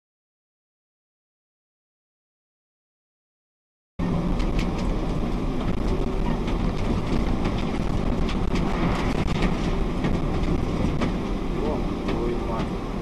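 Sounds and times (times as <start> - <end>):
car engine idling: 4.0 - 13.0.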